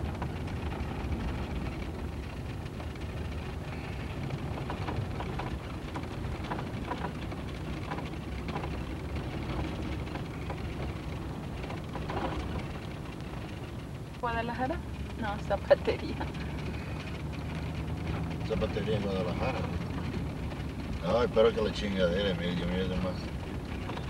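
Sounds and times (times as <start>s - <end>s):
engine and tyre rumble: 0.0s - 24.0s
faint clicks and rattles: 0.0s - 24.0s.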